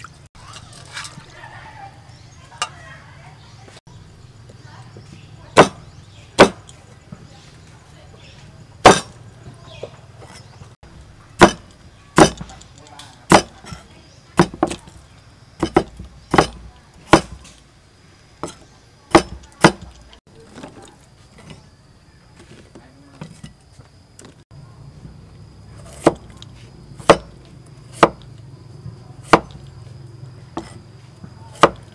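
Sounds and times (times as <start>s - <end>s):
cleaver chopping on wooden board: 5.6s - 6.7s, 8.8s - 9.2s, 11.4s - 12.6s, 13.3s - 13.8s, 14.4s - 15.0s, 15.6s - 17.6s, 18.4s - 20.0s, 25.9s - 28.3s, 29.2s - 29.7s, 30.6s - 30.8s, 31.5s - 31.9s.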